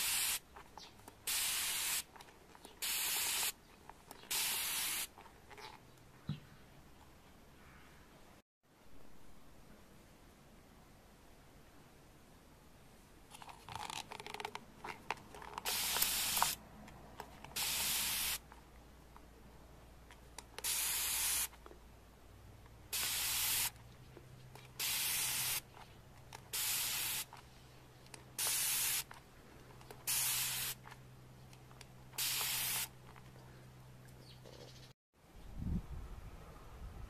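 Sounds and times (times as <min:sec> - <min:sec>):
spray bottle misting water: 0:00.0 - 0:00.5, 0:01.2 - 0:02.2, 0:02.8 - 0:03.6, 0:04.2 - 0:05.2, 0:15.6 - 0:16.6, 0:17.5 - 0:18.5, 0:20.6 - 0:21.6, 0:22.9 - 0:23.8, 0:24.7 - 0:25.7, 0:26.5 - 0:27.4, 0:28.4 - 0:29.1, 0:30.0 - 0:30.8, 0:32.2 - 0:33.0.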